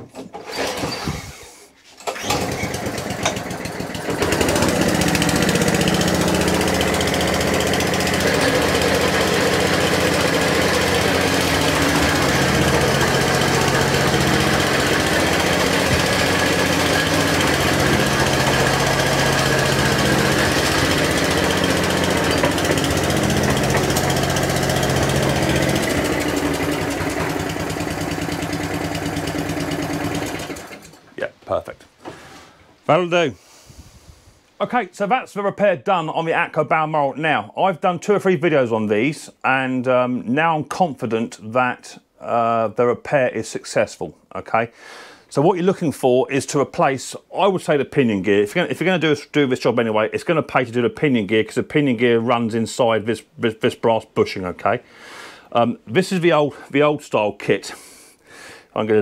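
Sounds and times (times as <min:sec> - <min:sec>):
lawn mower engine running: 0:02.0 - 0:31.1.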